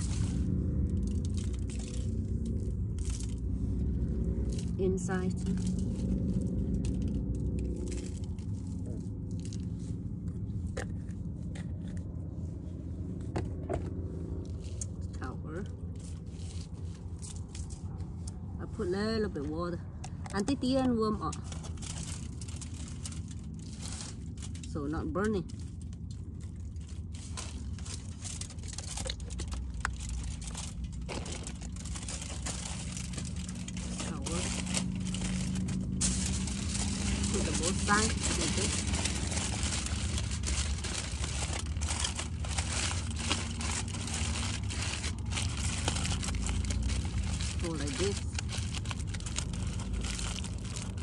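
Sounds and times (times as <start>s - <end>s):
foil crinkling and scraping: 0.0s - 51.0s
low hum: 0.0s - 51.0s
low rumble: 0.0s - 51.0s.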